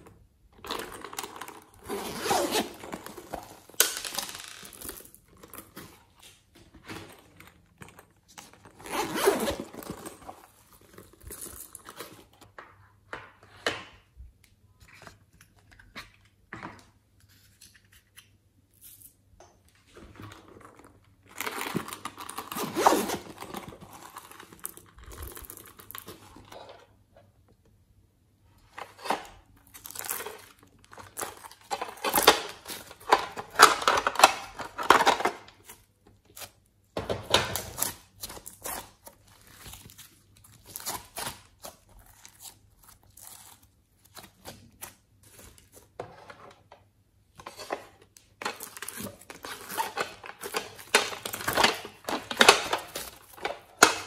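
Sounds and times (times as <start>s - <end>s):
hands handling plastic cases: 44.0s - 54.0s.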